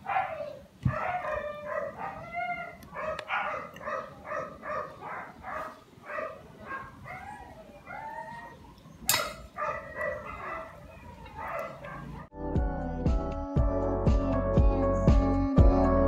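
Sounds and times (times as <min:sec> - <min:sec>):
dog yipping and whining: 0:00.1 - 0:12.3.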